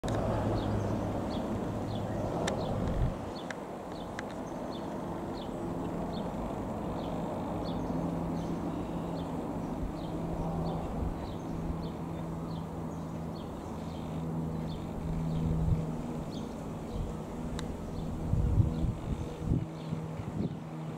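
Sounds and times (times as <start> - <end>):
light aircraft engine droning: 0.0 - 20.9
wind gust on microphone: 0.2 - 3.4, 14.2 - 20.9.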